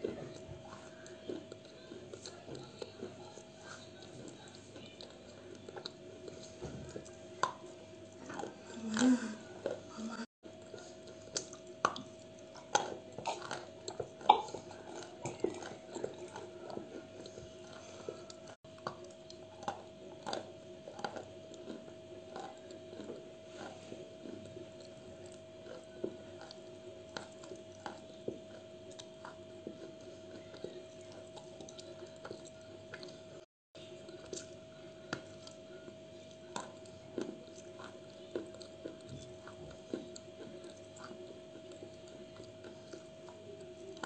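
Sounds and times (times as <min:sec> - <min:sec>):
faint steady hum: 0:00.0 - 0:44.0
chewing chalk crunches: 0:10.6 - 0:44.0.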